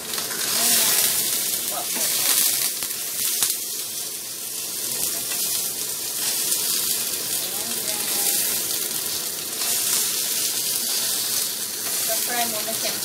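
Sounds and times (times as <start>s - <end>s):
fish sizzling in hot oil: 0.0s - 13.0s.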